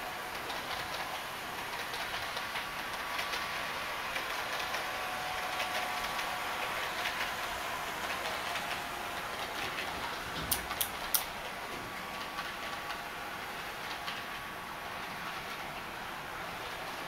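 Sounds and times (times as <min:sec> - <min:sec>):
model train wheels ticking: 0:00.0 - 0:17.0
thin motor whine: 0:00.0 - 0:17.0
sharp clicks: 0:10.5 - 0:11.3.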